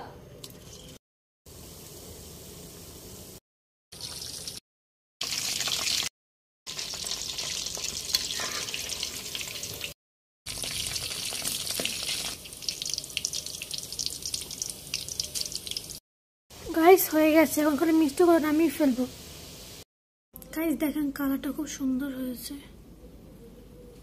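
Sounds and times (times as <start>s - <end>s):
hot oil sizzling and crackling: 0.6s - 4.6s, 5.2s - 6.1s, 6.7s - 16.0s, 16.6s - 19.9s.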